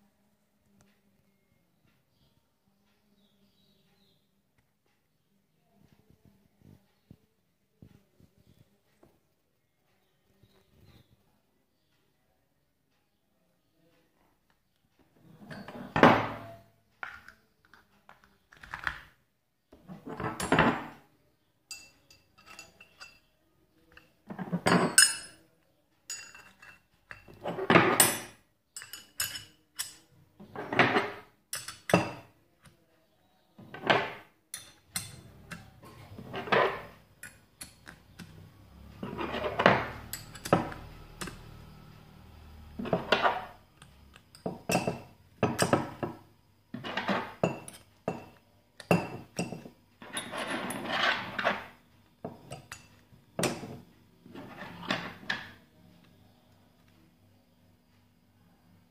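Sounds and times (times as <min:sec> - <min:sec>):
metal spanners clinking: 0:21.7 - 0:23.3, 0:23.9 - 0:25.4, 0:26.1 - 0:32.3, 0:34.6 - 0:38.4, 0:39.0 - 0:41.8, 0:46.8 - 0:51.7.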